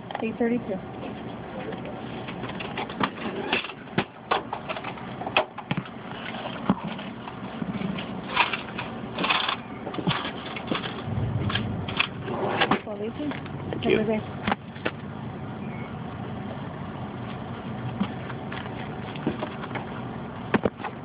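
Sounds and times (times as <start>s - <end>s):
low rumbling thump: 11.0s - 12.9s.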